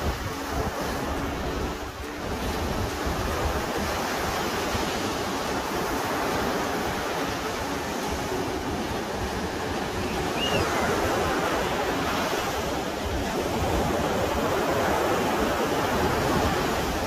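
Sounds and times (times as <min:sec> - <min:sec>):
ocean waves on sandy beach: 0:00.0 - 0:17.0.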